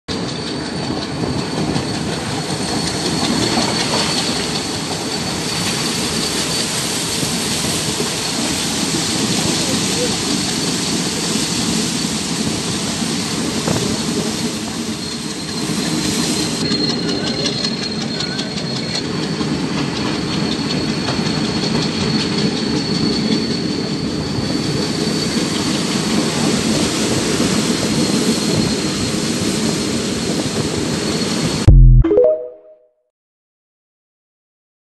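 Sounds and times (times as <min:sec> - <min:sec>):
train rumble and rushing air: 0:00.1 - 0:22.8.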